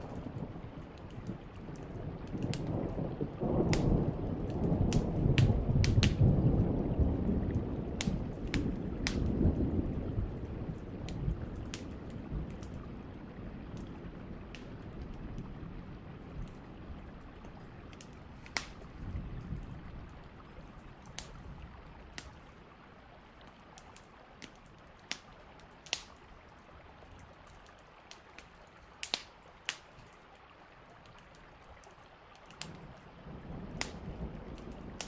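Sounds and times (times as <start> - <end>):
sharp ticks and pops: 0.0 - 6.3, 7.5 - 9.4, 17.4 - 19.6, 21.0 - 21.4, 22.1 - 22.4, 23.4 - 26.2, 27.5 - 30.0, 31.1 - 33.0, 33.8 - 35.0
low thunder rumble: 0.0 - 22.2, 32.7 - 35.0
steady rain: 0.0 - 35.0.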